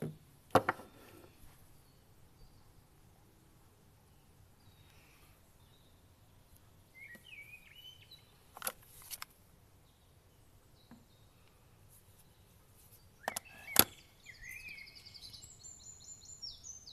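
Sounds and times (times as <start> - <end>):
birds chirping: 0.0 - 16.9.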